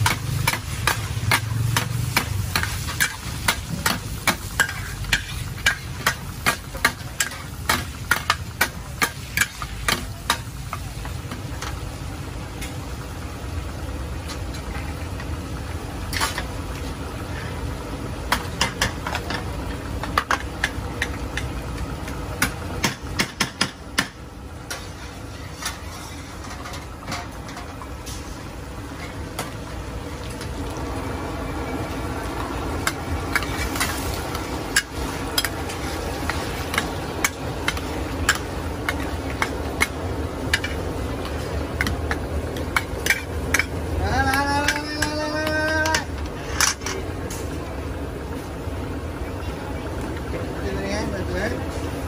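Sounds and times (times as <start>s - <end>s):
metal spatula scraping a wok: 0.0s - 9.9s, 24.7s - 26.9s
food sizzling: 0.0s - 52.0s.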